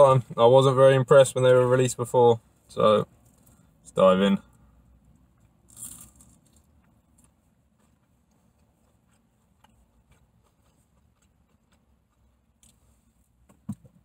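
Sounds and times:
soft crunch of biting food: 0:05.4 - 0:12.9.

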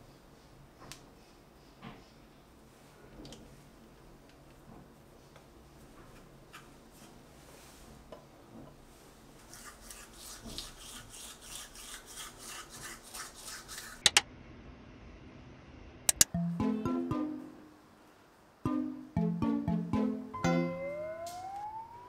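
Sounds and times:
toothbrush scrubbing teeth: 0:09.5 - 0:14.0
sharp clicks: 0:16.1 - 0:16.3
plucked-string music: 0:16.2 - 0:17.8, 0:18.7 - 0:21.6.

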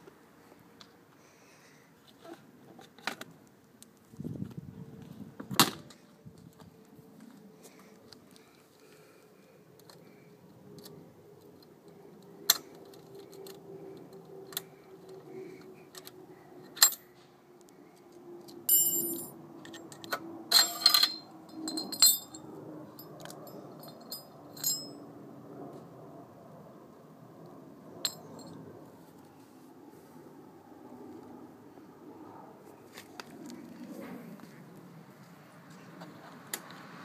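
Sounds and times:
metal parts clinking together: 0:18.7 - 0:22.4, 0:23.2 - 0:24.9.

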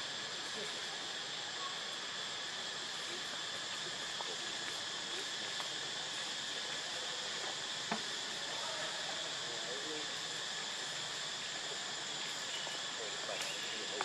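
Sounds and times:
insect drone: 0:00.0 - 0:14.0.

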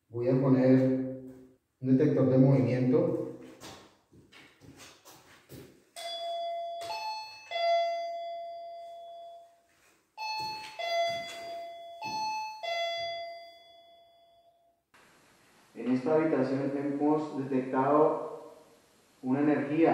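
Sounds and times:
two-note alarm chime: 0:06.0 - 0:09.6, 0:10.2 - 0:14.7.

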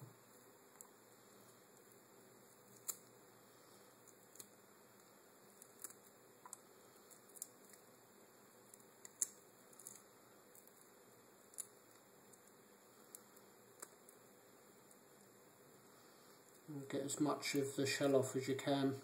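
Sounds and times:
quiet hiss: 0:00.0 - 0:19.0
crab shell cracking: 0:02.6 - 0:03.2, 0:04.0 - 0:04.6, 0:05.5 - 0:07.9, 0:08.6 - 0:14.2.

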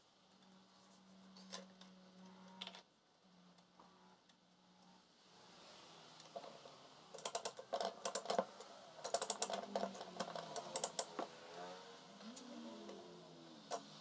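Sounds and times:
rapid sharp clicks: 0:07.2 - 0:11.2.

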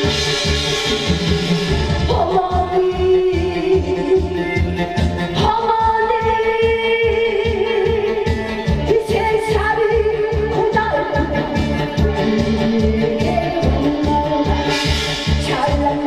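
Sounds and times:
music with steady beat: 0:00.0 - 0:16.0.

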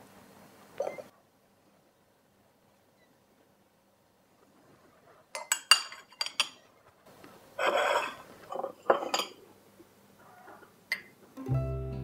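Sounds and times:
crockery scraping: 0:07.6 - 0:09.4.

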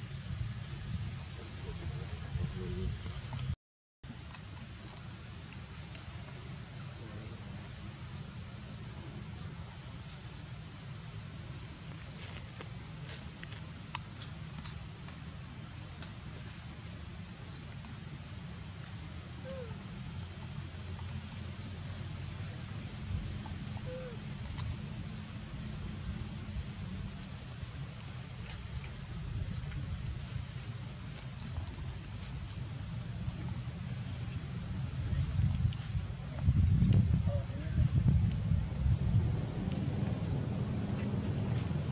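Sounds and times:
insect chorus drone: 0:00.0 - 0:41.9
low rumble: 0:33.0 - 0:41.9.

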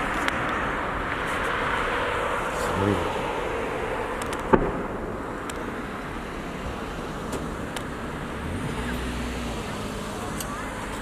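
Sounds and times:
sharp firework bang: 0:04.4 - 0:05.4.

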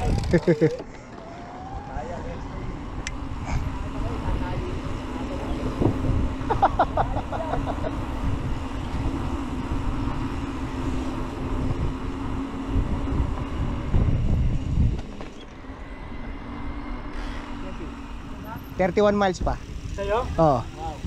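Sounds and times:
wind rumbling on microphone: 0:00.0 - 0:00.5, 0:01.2 - 0:17.0
bike rattle: 0:00.0 - 0:01.5
tyres humming on concrete: 0:00.0 - 0:21.0.

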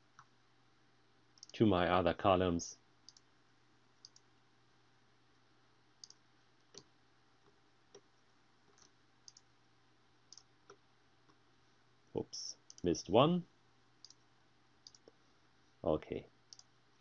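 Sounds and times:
computer mouse clicks: 0:01.4 - 0:01.6, 0:03.1 - 0:03.3, 0:04.0 - 0:04.3, 0:06.0 - 0:06.9, 0:08.7 - 0:09.5, 0:10.3 - 0:10.8, 0:12.6 - 0:12.9, 0:14.0 - 0:14.2, 0:14.8 - 0:15.2, 0:16.5 - 0:16.7.

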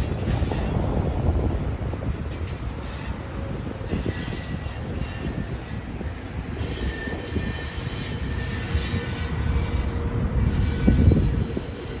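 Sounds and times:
train wheels rumbling on track: 0:00.0 - 0:12.0
thin wheel squeal: 0:03.9 - 0:12.0.

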